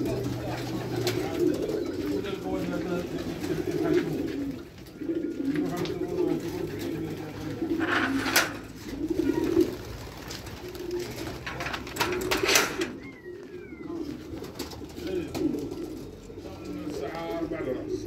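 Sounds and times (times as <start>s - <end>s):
pigeons cooing: 0.0s - 18.0s
rustling: 2.8s - 17.5s.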